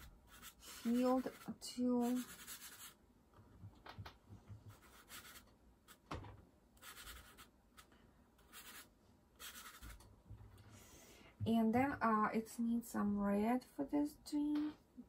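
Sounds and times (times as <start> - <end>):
pastel scratching on paper: 0.0 - 3.0, 4.7 - 6.0, 6.8 - 7.9, 8.5 - 10.0.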